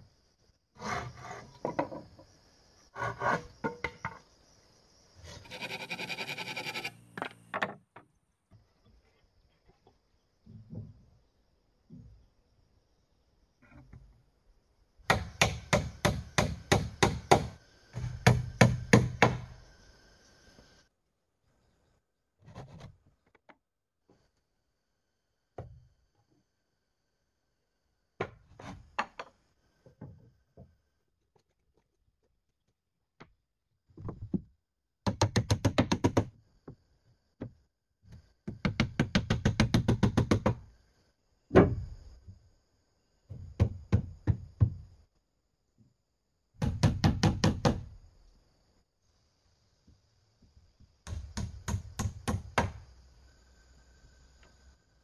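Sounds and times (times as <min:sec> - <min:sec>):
hammer striking wooden planks: 0:15.1 - 0:19.5.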